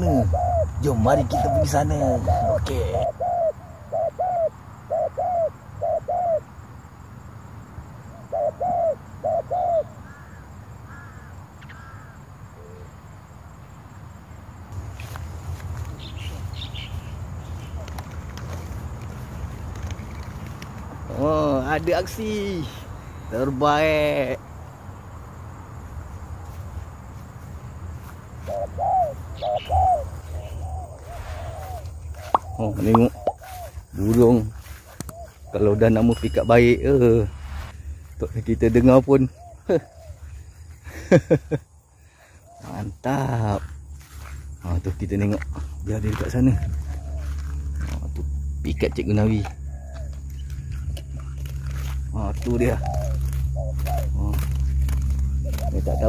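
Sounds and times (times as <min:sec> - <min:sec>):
dove cooing: 0:00.0 - 0:06.5, 0:08.1 - 0:12.9, 0:28.3 - 0:36.0, 0:39.2 - 0:40.6, 0:45.5 - 0:56.0
faint high bird notes: 0:35.5 - 0:37.8
low rumble: 0:36.7 - 0:38.5.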